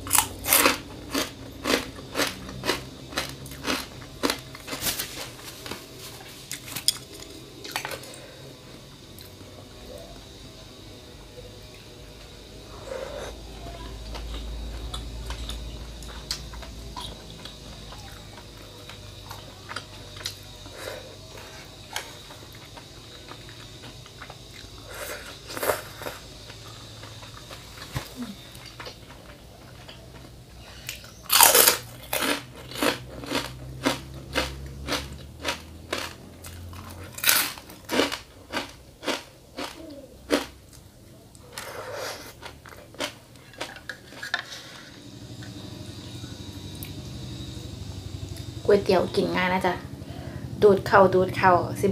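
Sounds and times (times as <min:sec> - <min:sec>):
loud crunching bites: 0:00.0 - 0:05.8, 0:30.8 - 0:40.6
person chewing food: 0:00.0 - 0:05.8, 0:14.1 - 0:40.8, 0:41.4 - 0:44.9.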